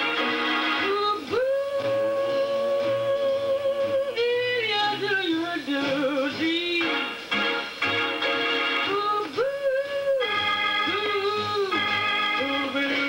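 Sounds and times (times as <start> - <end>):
person singing: 0.0 - 7.4, 8.7 - 13.0.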